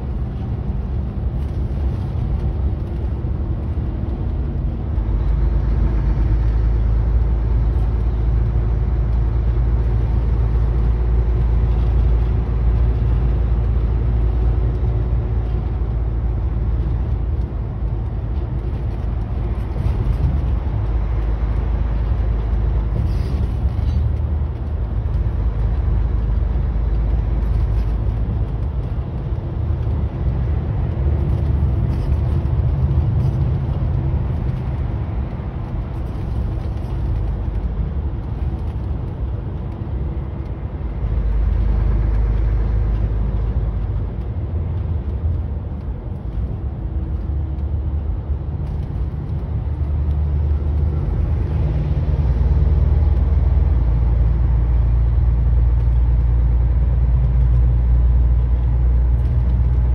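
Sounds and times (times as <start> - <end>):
truck engine and tyres droning: 0.0 - 59.9.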